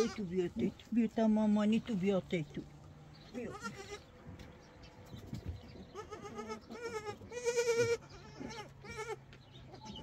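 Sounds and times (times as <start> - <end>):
livestock bleating: 0.0 - 0.4, 3.3 - 4.1, 5.9 - 10.0.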